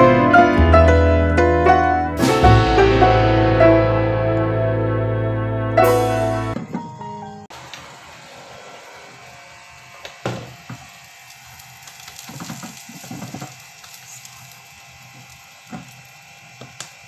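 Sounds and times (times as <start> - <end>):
omelette sizzling in a pan: 10.8 - 17.0.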